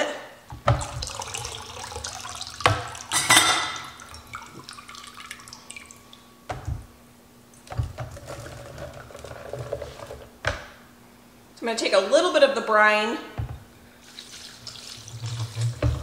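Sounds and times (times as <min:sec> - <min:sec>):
brine splashing and dripping: 0:00.6 - 0:03.1, 0:03.8 - 0:06.2, 0:14.0 - 0:16.0
liquid pouring: 0:00.7 - 0:06.3, 0:07.6 - 0:10.3, 0:14.0 - 0:16.0.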